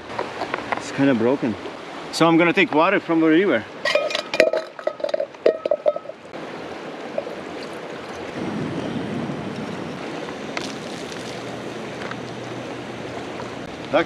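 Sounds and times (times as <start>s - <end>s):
river rushing: 0.0s - 14.0s
metal pot clinking: 3.8s - 6.2s.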